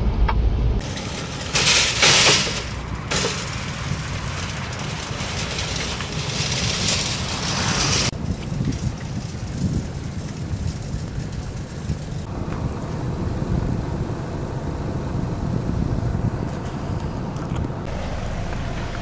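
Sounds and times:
shopping carts rattling: 0.8 - 12.3.

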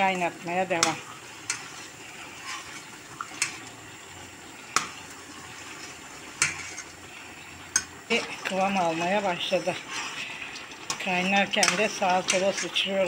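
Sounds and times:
sauce bubbling in a pot: 0.0 - 13.0.

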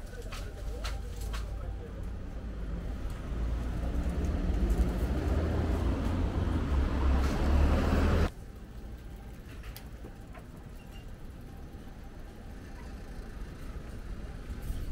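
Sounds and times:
faint street sound: 0.0 - 14.9
vehicle passing close by: 2.4 - 8.3.

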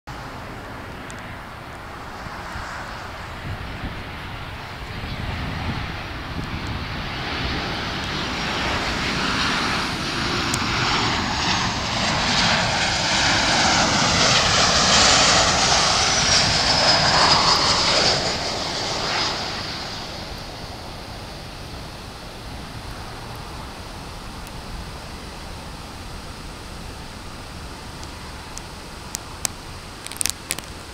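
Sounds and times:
high fan whine: 0.1 - 30.9
jet airliner flying past: 0.1 - 30.9.

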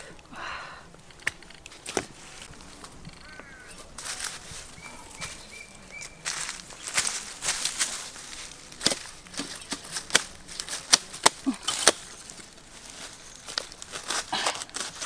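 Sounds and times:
machete chopping bamboo: 8.7 - 12.2.

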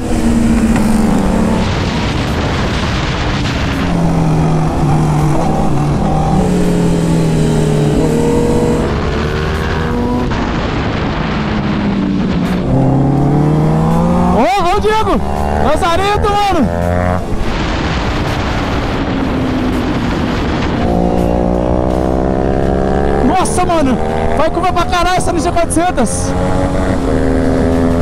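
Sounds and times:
wind rush on microphone: 0.0 - 21.7
motorcycle engines racing: 0.0 - 28.0.

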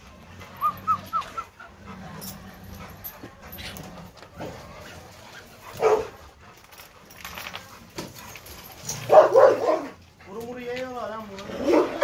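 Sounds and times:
dog barking: 5.8 - 6.2, 9.1 - 10.0.

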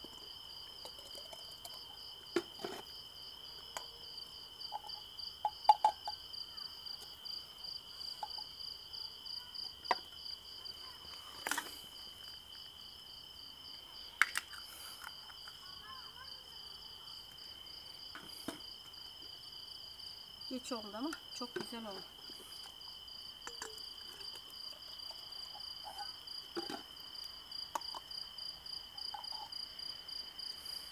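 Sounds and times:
crickets chirping: 0.0 - 30.9.

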